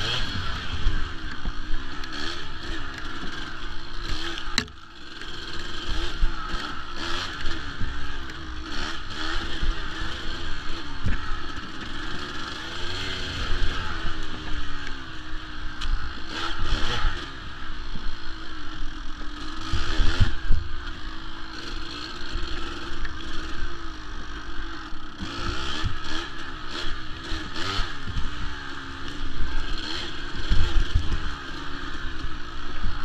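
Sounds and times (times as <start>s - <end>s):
bike knocking and rattling: 0.0s - 13.0s
dirt bike engine revving: 0.0s - 33.0s.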